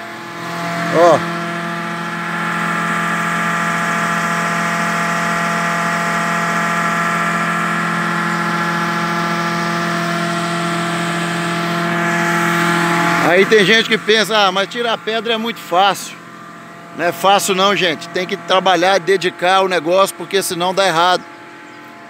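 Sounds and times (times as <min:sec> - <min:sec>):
machine droning: 0:00.0 - 0:22.0.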